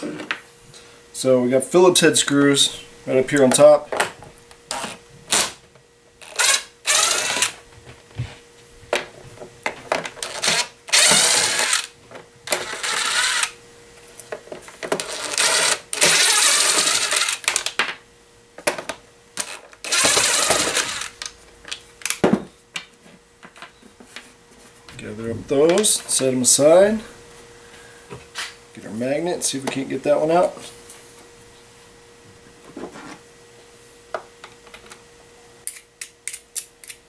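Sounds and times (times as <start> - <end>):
impact driver bursts: 6.2 - 7.6, 10.2 - 11.9, 12.5 - 13.6, 15.1 - 17.6, 19.4 - 21.1.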